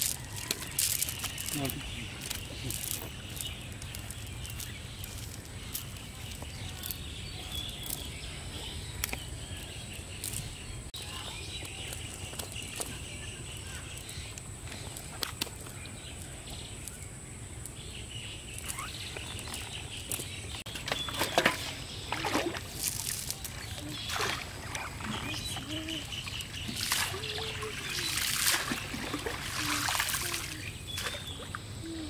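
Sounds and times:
fish flapping in metal basin: 0:26.8 - 0:31.1.

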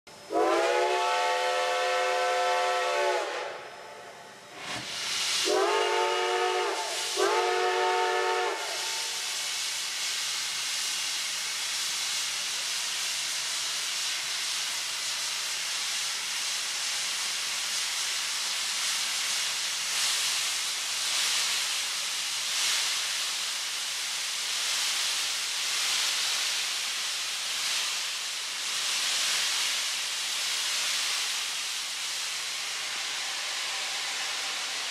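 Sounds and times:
steam hissing: 0:00.2 - 0:34.9
steam locomotive chime whistle: 0:00.3 - 0:04.4, 0:05.4 - 0:09.3.

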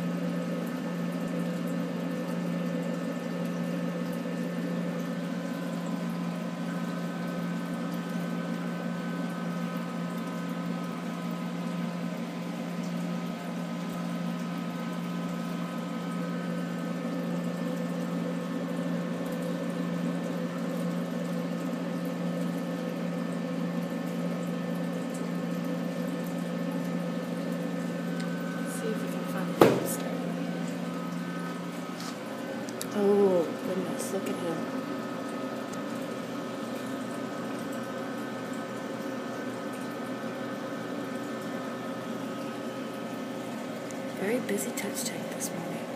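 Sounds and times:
water pump humming: 0:00.0 - 0:45.9
moving water washing: 0:26.8 - 0:37.7.

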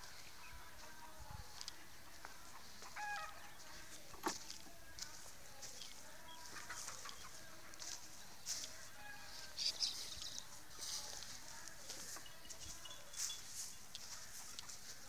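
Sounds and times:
bird chirps: 0:09.2 - 0:10.5, 0:12.2 - 0:14.1.

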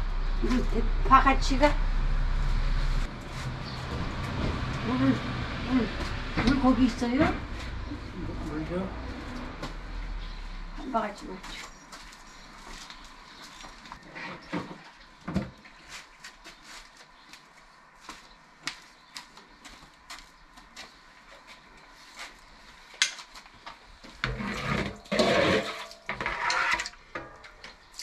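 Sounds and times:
water pouring and splashing: 0:24.8 - 0:27.1.

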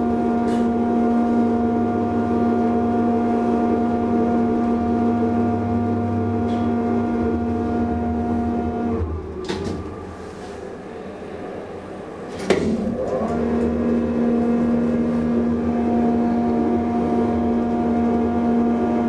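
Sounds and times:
elevator drive humming: 0:00.0 - 0:19.0
elevator clunk: 0:12.3 - 0:13.8.

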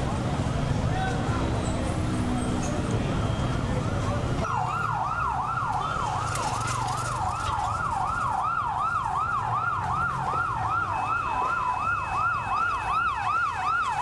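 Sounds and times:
siren yelping: 0:04.4 - 0:14.0.

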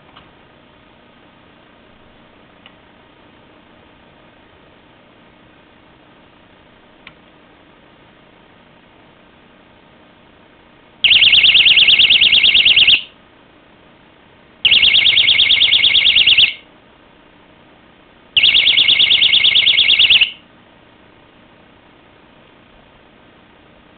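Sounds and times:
high-pitched warbling alarm: 0:11.0 - 0:13.1, 0:14.7 - 0:16.6, 0:18.4 - 0:20.4.

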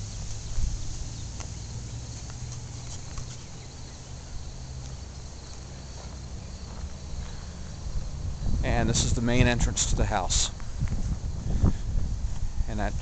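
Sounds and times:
low microphone rumble: 0:00.0 - 0:13.0
soft footsteps: 0:00.4 - 0:08.1, 0:10.5 - 0:11.4.

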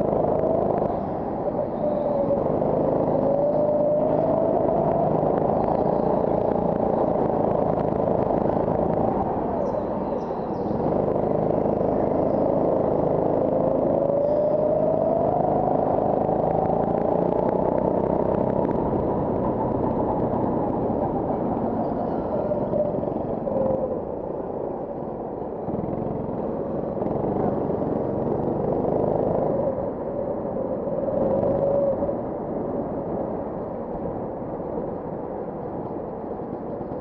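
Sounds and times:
go-kart engine accelerating: 0:10.6 - 0:20.7, 0:25.7 - 0:29.7.

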